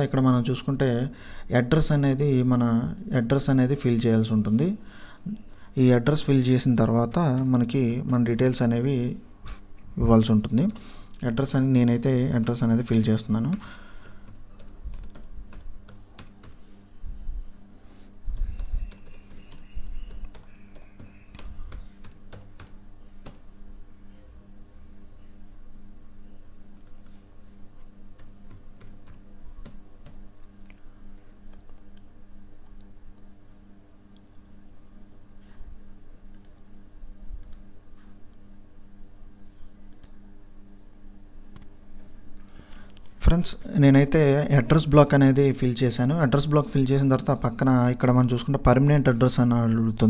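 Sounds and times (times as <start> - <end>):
low electrical hum: 0.0 - 50.0
computer keyboard typing: 7.1 - 8.3, 13.4 - 16.6, 18.3 - 23.4, 28.1 - 30.8, 36.3 - 36.6.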